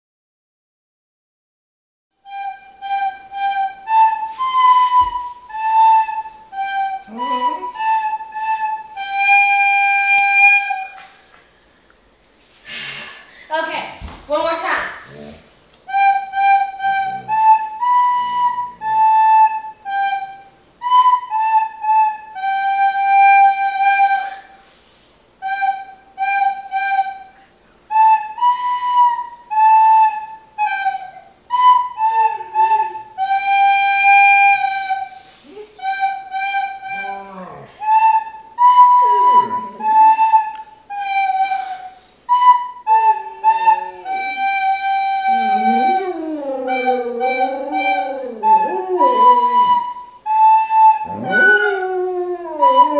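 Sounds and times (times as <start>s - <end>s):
recorder playing slow tune: 2.2s - 11.7s, 15.1s - 52.9s
dog howling: 36.8s - 37.9s, 39.0s - 40.2s, 43.4s - 49.9s, 50.9s - 52.9s.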